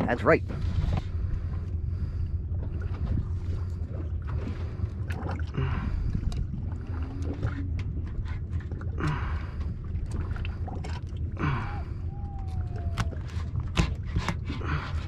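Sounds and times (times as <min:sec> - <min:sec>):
wind and water rumble: 0:00.0 - 0:15.0
clicks and knocks of fish handling: 0:12.2 - 0:15.0.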